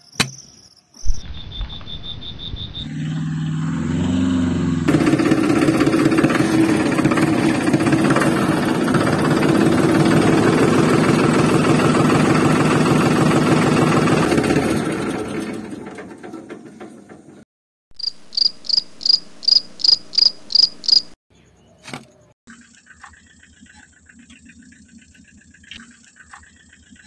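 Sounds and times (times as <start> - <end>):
tractor engine chugging: 4.9 - 17.4.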